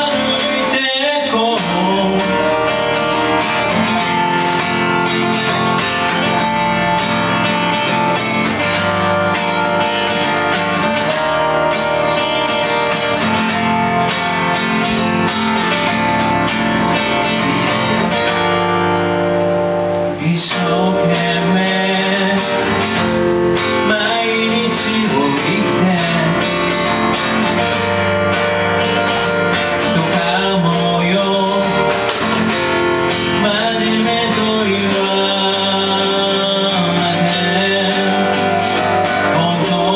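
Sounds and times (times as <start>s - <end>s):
man singing: 0.0s - 4.3s, 20.1s - 27.4s, 29.7s - 39.9s
keyboard playing: 0.0s - 39.9s
strummed acoustic guitar: 0.0s - 39.9s.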